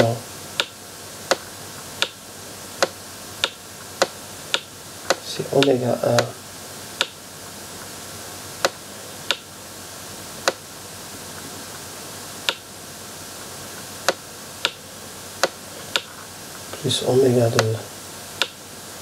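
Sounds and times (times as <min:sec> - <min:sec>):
faint steady hiss: 0:00.0 - 0:19.0
sharp clicks: 0:00.6 - 0:01.4, 0:02.8 - 0:06.4.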